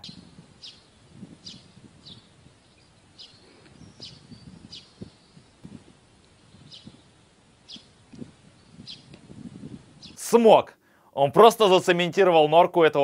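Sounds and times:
short bird chirps: 0:00.0 - 0:05.7.

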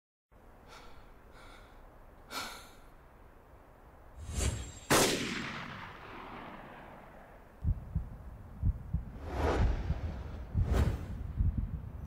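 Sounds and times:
gunshot with long echo: 0:04.8 - 0:07.4.

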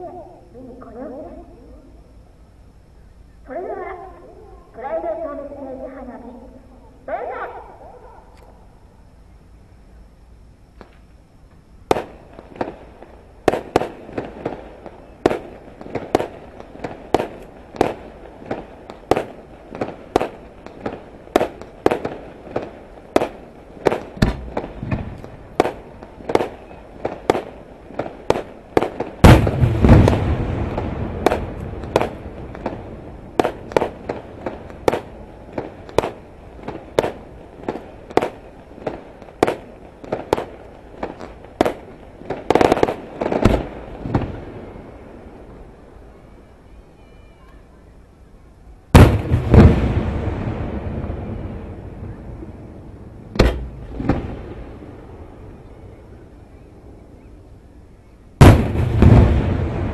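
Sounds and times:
fireworks bursting with sharp bangs: 0:10.6 - 0:47.2, 0:48.9 - 0:57.3, 0:58.4 - 0:59.9
deep firework boom: 0:13.5 - 0:38.4, 0:49.0 - 0:55.7, 0:58.4 - 0:59.9.

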